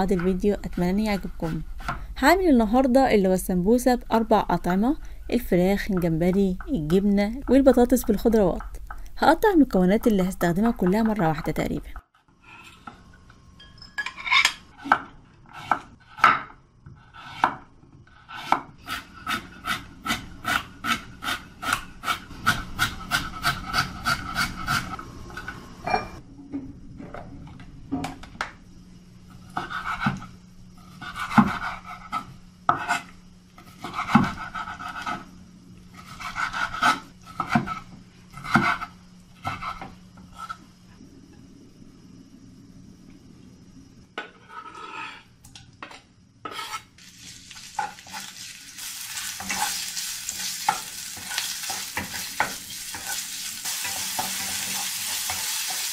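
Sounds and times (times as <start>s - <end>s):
knife scraping on board: 18.2s - 25.0s, 29.5s - 35.3s, 36.0s - 40.6s, 44.2s - 45.3s, 46.4s - 47.0s, 49.2s - 53.2s
knife chopping on wooden board: 33.8s - 35.2s.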